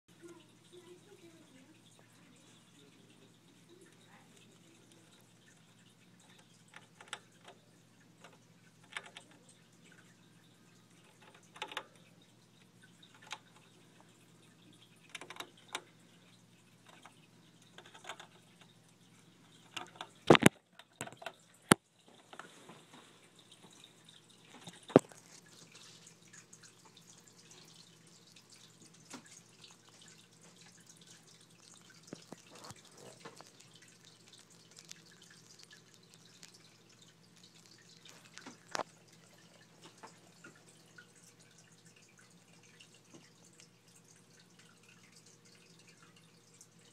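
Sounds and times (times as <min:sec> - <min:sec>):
hamster clicking and scratching: 0:03.5 - 0:09.6, 0:10.9 - 0:12.0, 0:13.0 - 0:13.9, 0:14.7 - 0:15.9, 0:16.8 - 0:18.8, 0:19.5 - 0:21.8, 0:26.9 - 0:40.5.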